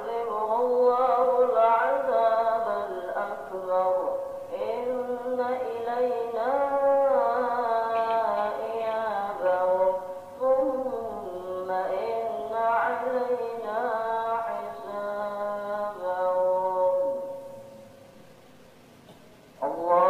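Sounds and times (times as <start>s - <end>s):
person chanting a melody: 0.0s - 17.8s, 19.6s - 20.0s.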